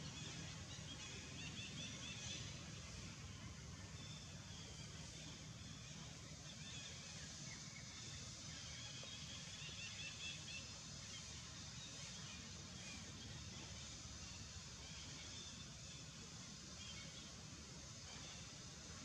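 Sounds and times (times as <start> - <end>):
low rumble and hiss: 0.0 - 19.0.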